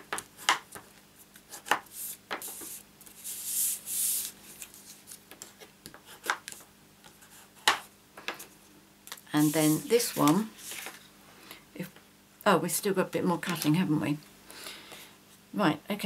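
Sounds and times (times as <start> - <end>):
papery rubbing swish: 9.4 - 10.9.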